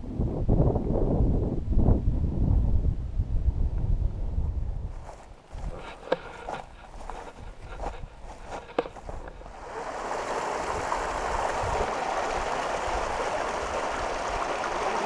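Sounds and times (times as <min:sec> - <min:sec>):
footsteps on grass: 0:04.9 - 0:09.6
stream splashing over boulders: 0:08.6 - 0:15.0.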